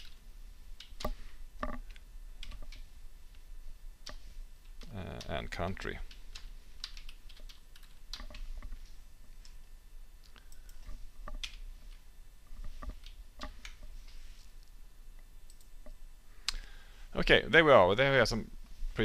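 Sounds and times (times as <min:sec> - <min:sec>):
faint low hum: 0:00.0 - 0:19.0
typing on keyboard: 0:00.8 - 0:02.8, 0:06.0 - 0:08.7.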